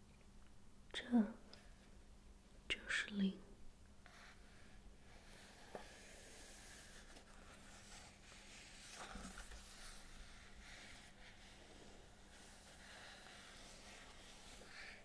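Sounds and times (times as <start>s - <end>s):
faint steady hum: 0.0s - 15.0s
fingers on book pages: 5.2s - 15.0s
hands brushing pages: 5.4s - 15.0s.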